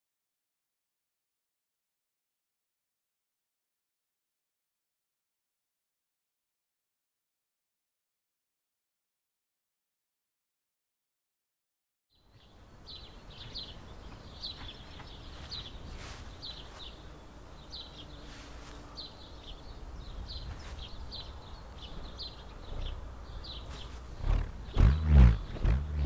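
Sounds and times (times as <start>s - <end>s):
small birds chirping: 12.1s - 26.0s
low outdoor rumble: 12.6s - 26.0s.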